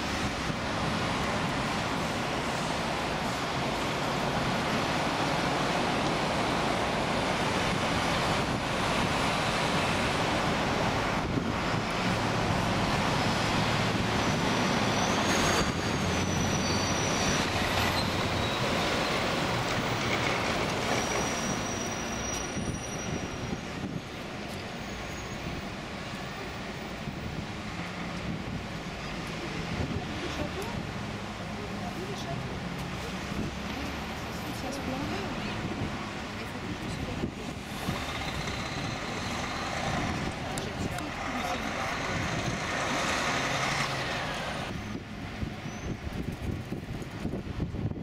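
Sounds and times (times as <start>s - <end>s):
heavy road traffic: 0.0s - 48.0s
thin high squeal: 14.8s - 19.2s, 20.9s - 23.6s, 45.7s - 46.0s.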